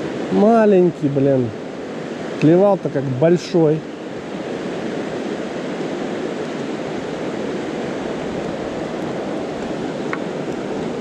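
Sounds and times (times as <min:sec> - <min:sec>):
river rushing over rocks: 0:00.0 - 0:11.0.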